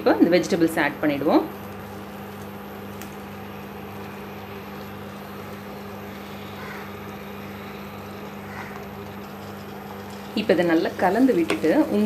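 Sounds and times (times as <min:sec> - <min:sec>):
cooktop hum and fan noise: 0:00.0 - 0:12.0.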